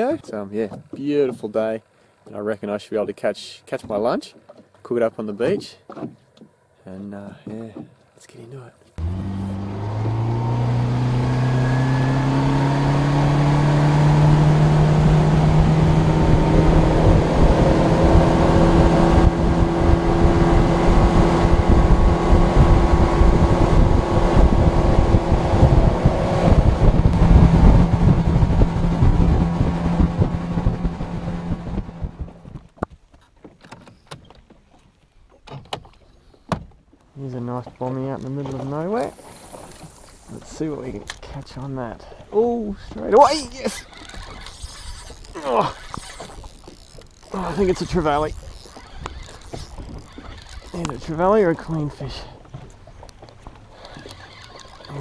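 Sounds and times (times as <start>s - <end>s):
trolling motor clicks and knocks: 0.6s - 1.7s, 3.8s - 8.1s, 31.8s - 41.8s, 42.8s - 55.0s
outboard motor accelerating: 9.0s - 32.6s, 42.4s - 55.0s.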